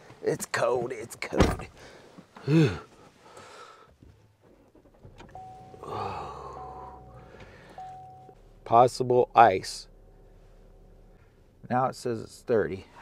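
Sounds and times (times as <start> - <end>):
car engine starting and running: 3.9 - 13.0
dashboard chime beeps: 5.4 - 6.0, 7.8 - 8.4.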